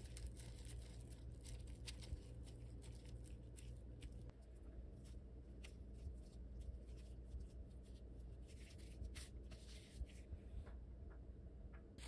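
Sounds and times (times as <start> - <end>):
meat patty rustling in powder: 0.0 - 10.3.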